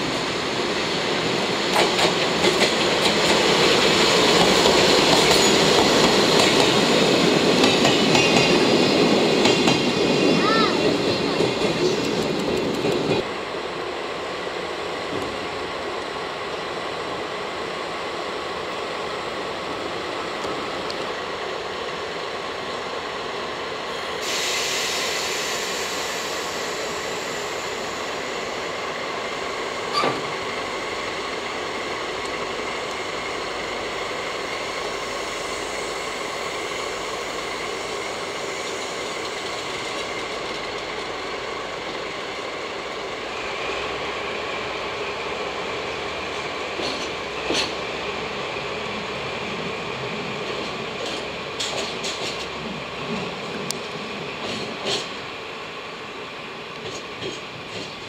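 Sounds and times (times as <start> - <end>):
diesel locomotive running: 0.0 - 58.0
loud hiss: 23.9 - 31.1.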